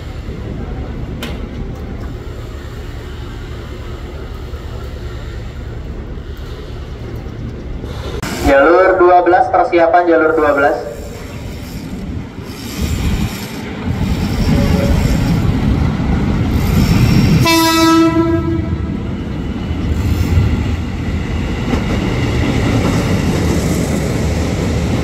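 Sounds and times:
train wheels rumbling: 10.2 - 25.0
train horn blast: 14.5 - 15.3, 17.4 - 19.0.

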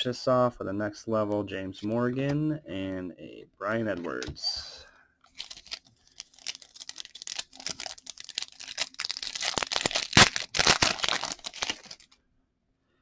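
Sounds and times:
foil wrapper crinkling: 5.3 - 12.2
foil wrapper ripping: 5.3 - 12.2.

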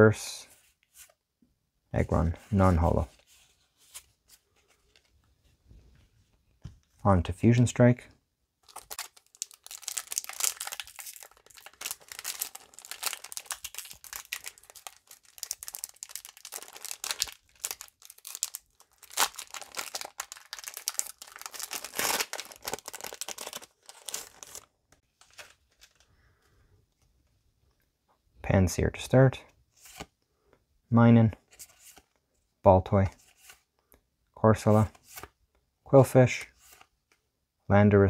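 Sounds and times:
foil wrapper crinkling and tearing: 8.6 - 26.0.

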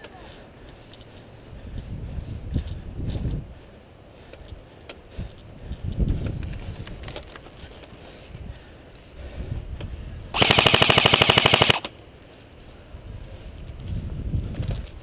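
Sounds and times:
airsoft rifle full-auto burst: 10.4 - 11.9.

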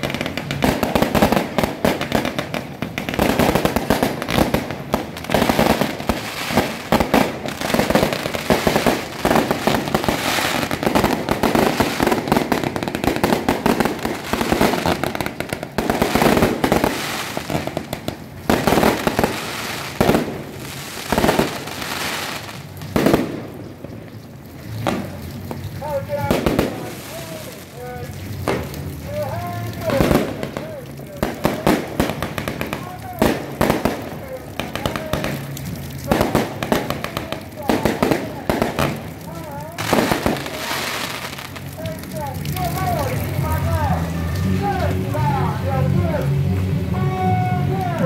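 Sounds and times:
aerial fireworks bursting: 0.0 - 24.0, 26.1 - 43.3
firecrackers crackling: 0.0 - 48.0.

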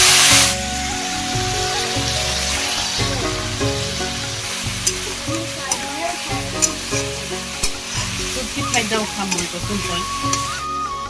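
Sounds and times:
background music: 0.0 - 11.0
meat sizzling in a wok: 0.0 - 11.0
metal spatula scraping pan: 3.6 - 10.7.

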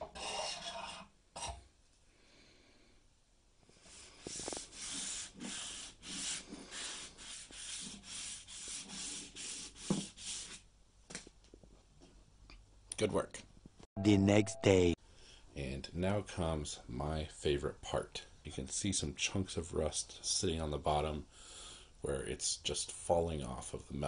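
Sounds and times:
curved blade scraping wood: 0.0 - 1.6
sandpaper rubbing on wood: 4.2 - 10.6.

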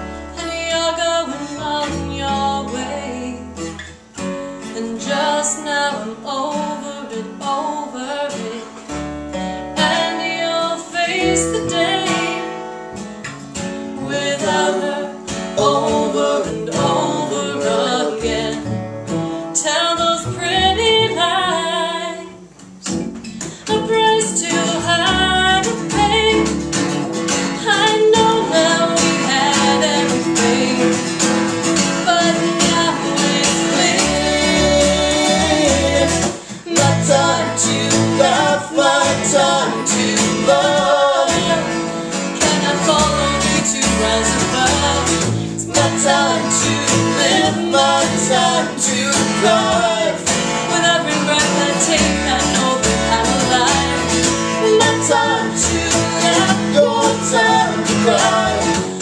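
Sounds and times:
strummed acoustic guitar: 0.0 - 59.0
woman singing: 0.2 - 3.7, 4.6 - 9.0, 9.7 - 12.7, 13.9 - 26.8, 27.5 - 59.0
plucked double bass: 13.3 - 59.0.

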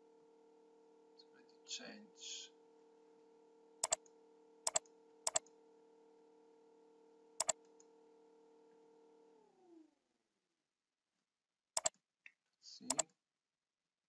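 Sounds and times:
computer mouse button clicks: 4.7 - 5.4.

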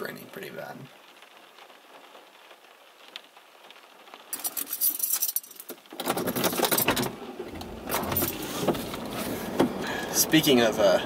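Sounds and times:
keys jangling: 4.4 - 7.1
truck engine starting and running: 6.0 - 11.0.

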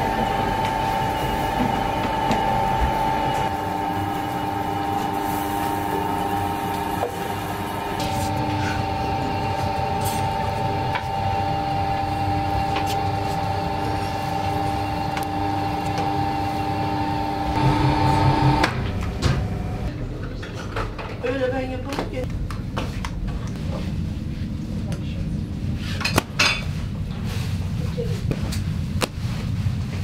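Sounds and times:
dough mixer motor whining: 0.0 - 19.9.

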